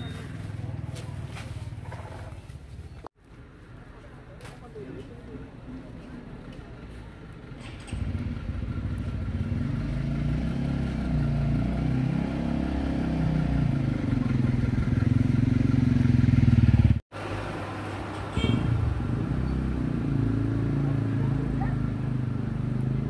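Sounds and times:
motorbike engine running: 7.9s - 11.8s, 13.2s - 17.0s.

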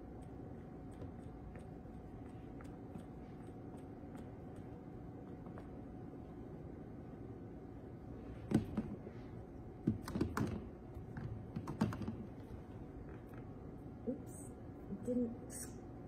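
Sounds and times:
low room hum: 0.0s - 16.0s.

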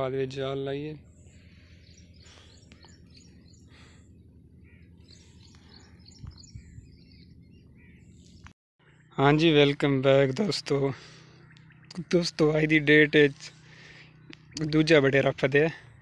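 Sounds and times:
small birds chirping: 0.0s - 16.0s.

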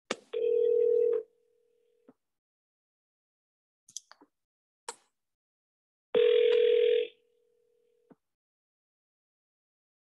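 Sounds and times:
telephone ringback tone: 0.4s - 1.3s, 6.2s - 7.2s.

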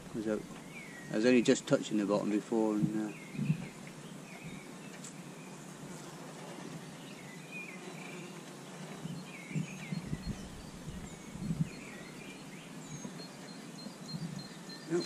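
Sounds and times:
birds chirping: 0.0s - 15.0s
wind bumps on microphone: 2.7s - 3.8s, 9.0s - 12.2s.

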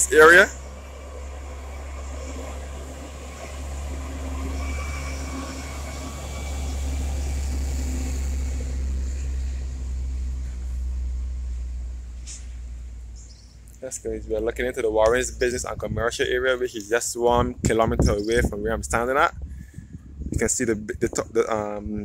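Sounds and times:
heavy lorry driving past: 0.0s - 15.5s
cars passing: 0.0s - 17.4s.

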